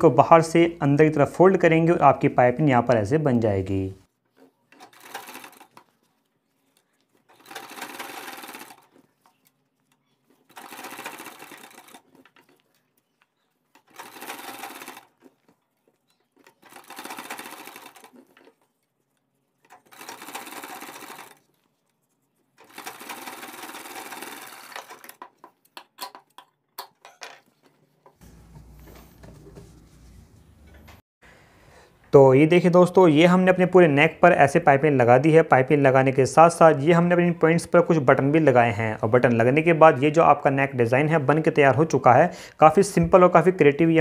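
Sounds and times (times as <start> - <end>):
sewing machine stitching: 4.4 - 6.1, 6.7 - 9.4, 10.2 - 12.8, 13.5 - 18.8, 19.6 - 21.4, 22.6 - 25.3.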